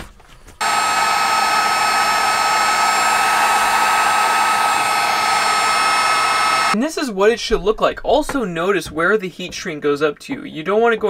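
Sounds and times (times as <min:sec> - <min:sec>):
heat gun fan whining: 0:00.6 - 0:06.8.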